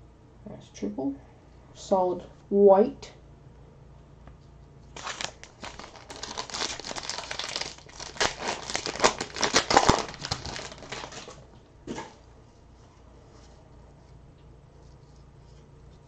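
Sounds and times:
foil wrapper tearing and crinkling: 4.9s - 11.4s.

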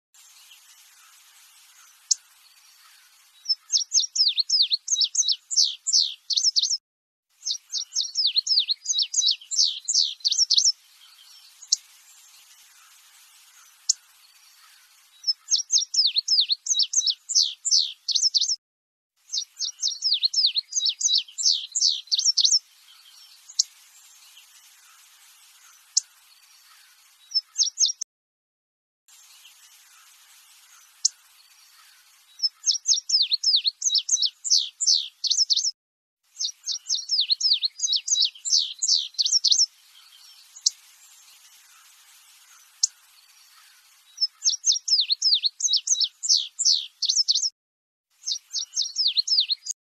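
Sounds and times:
bunting singing: 7.4s - 12.9s, 29.2s - 35.7s, 36.4s - 40.8s.

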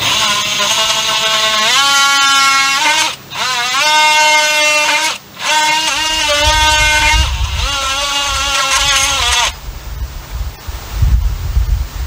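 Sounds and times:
oscillating multi-tool cutting wood: 0.0s - 9.6s.

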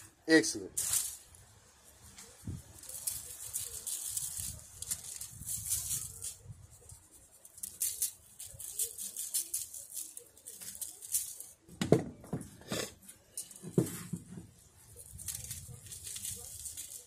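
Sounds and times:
spice granules pattering on foil: 0.7s - 11.7s, 13.0s - 13.8s, 14.4s - 17.0s
knocks: 11.8s - 12.5s.

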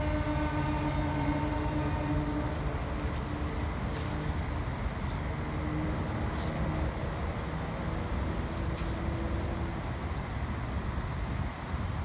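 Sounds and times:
faint engine hum: 0.0s - 12.0s
low rumble of road traffic: 0.0s - 12.0s.

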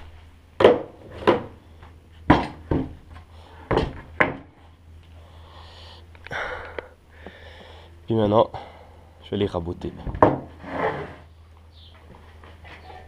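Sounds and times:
wooden boards knocking: 0.6s - 1.5s, 10.0s - 10.5s
wood rubbing: 9.8s - 11.3s.

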